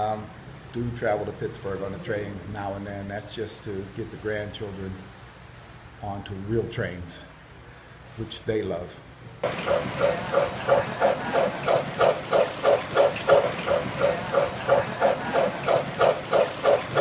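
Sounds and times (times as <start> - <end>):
model train rhythmic pulses: 9.4 - 17.0.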